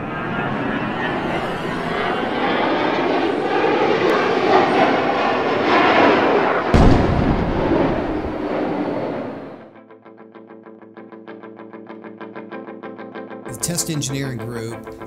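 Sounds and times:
jet aircraft noise: 0.0 - 9.7, 13.5 - 15.0
sudden deep boom: 6.7 - 9.3.

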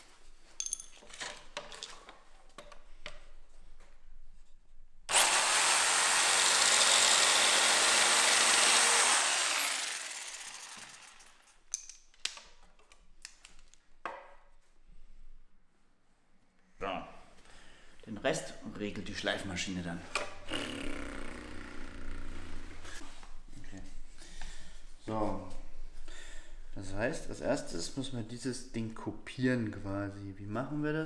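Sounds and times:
electric jigsaw cutting wood: 5.1 - 11.5
wood knocking and clicking: 14.0 - 14.4.

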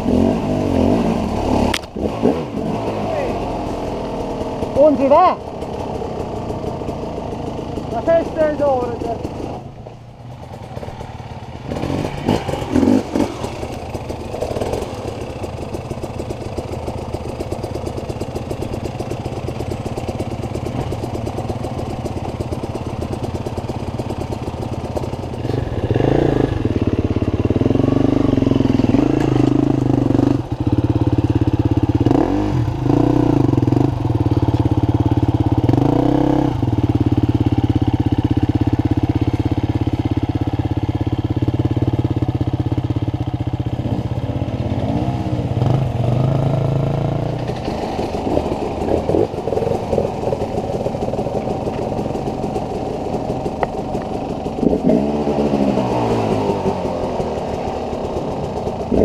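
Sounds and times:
motorcycle engine revving: 0.0 - 59.0
motorcycle engines running: 0.0 - 59.0.

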